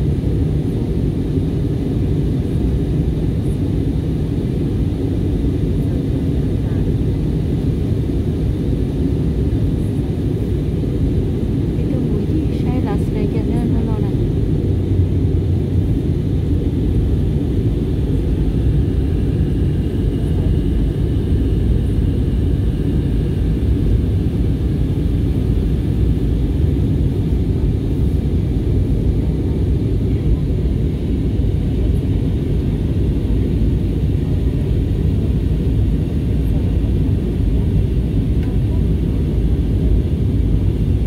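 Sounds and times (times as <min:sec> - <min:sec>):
jet engine rumble in cabin: 0:00.0 - 0:41.0.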